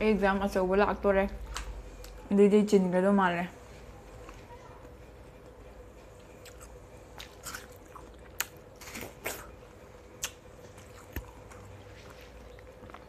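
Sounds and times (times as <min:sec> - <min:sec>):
watermelon crunching: 0:06.4 - 0:13.0.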